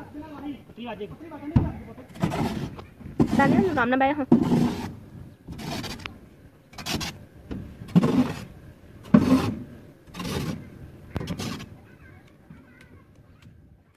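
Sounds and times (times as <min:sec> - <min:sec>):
shovel scraping through sand: 0:02.1 - 0:06.1, 0:06.7 - 0:07.2, 0:07.9 - 0:11.8.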